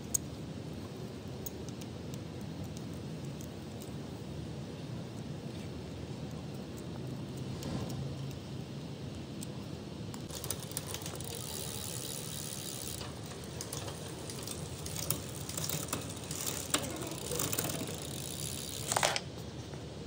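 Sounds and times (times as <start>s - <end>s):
bike chain rattling: 10.3s - 19.3s.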